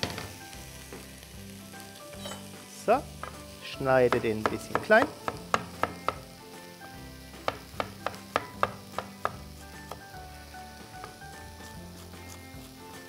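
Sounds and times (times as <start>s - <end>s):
knife chopping on wooden board: 4.1s - 6.2s, 7.4s - 10.0s.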